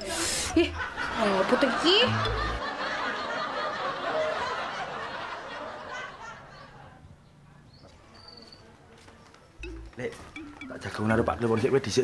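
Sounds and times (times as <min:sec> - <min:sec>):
people laughing: 0:00.6 - 0:07.0.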